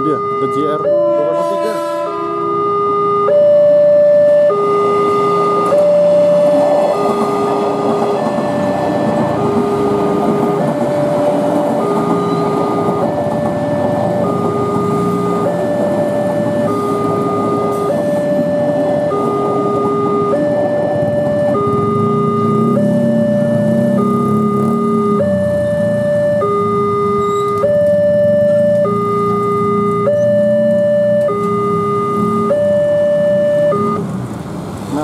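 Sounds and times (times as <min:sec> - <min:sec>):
two-tone level crossing alarm: 0:00.0 - 0:34.1
electric train passing: 0:04.4 - 0:27.4.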